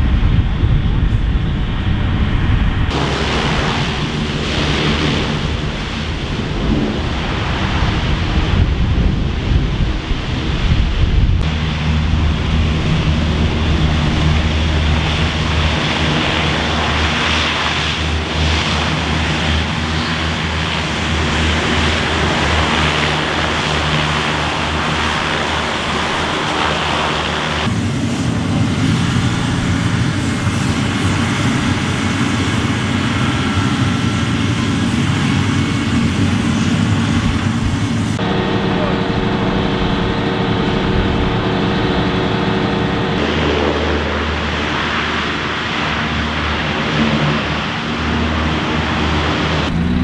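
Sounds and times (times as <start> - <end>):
hovercraft engines droning: 0.0 - 50.0
faint high whine: 37.9 - 46.4.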